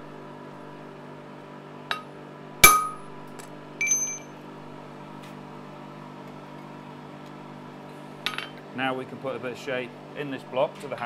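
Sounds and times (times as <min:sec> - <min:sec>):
steady low hum: 0:00.0 - 0:10.8
hammer striking steel on anvil: 0:01.9 - 0:03.1, 0:03.8 - 0:04.3
ringing metallic clinks: 0:03.8 - 0:04.4.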